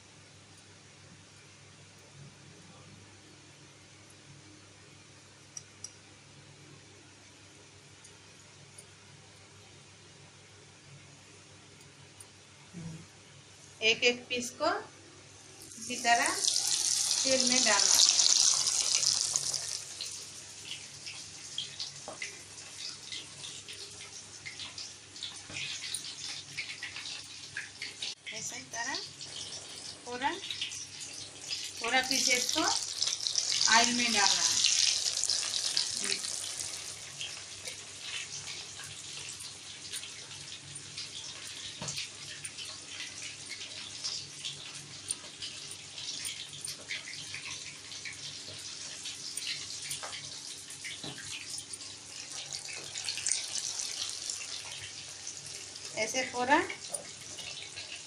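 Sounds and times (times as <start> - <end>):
chicken frying in hot oil: 15.3 - 58.0.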